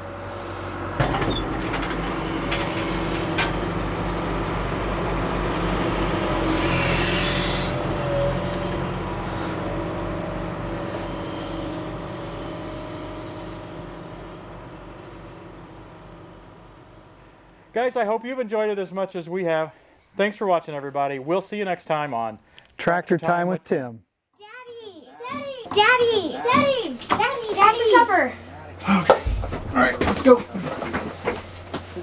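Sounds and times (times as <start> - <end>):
backhoe diesel engine running: 0.0 - 17.8.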